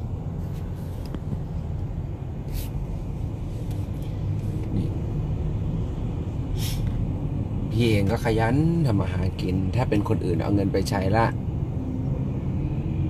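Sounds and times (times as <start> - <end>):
car engine and tyres rumbling: 0.0 - 13.0
brief hiss: 2.5 - 2.8, 6.6 - 7.0.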